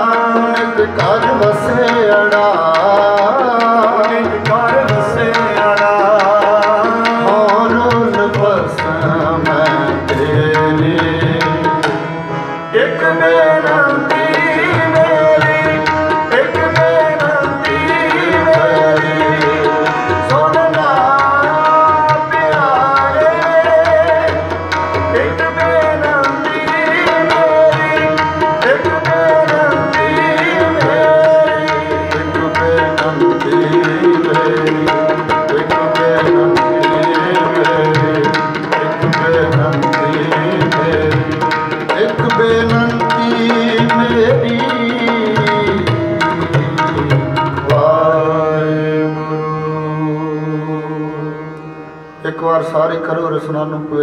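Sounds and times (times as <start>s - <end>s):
tabla drumming: 0.0s - 49.2s
harmonium playing: 0.0s - 54.0s
man singing: 0.0s - 54.0s.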